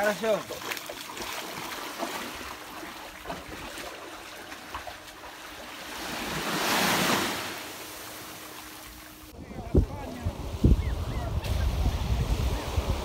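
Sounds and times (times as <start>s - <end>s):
surf washing on sand: 4.8s - 13.0s.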